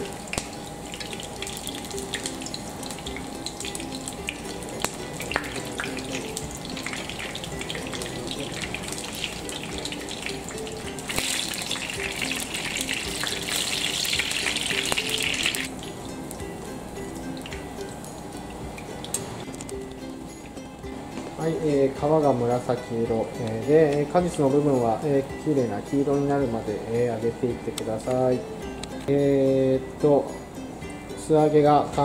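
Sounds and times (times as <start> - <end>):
eggplant sizzling in hot oil: 0.0 - 19.5.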